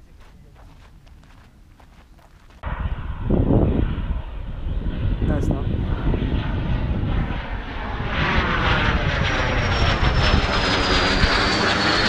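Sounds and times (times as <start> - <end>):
airplane passing overhead: 0.0 - 12.0
high whine falling in pitch: 2.6 - 12.0.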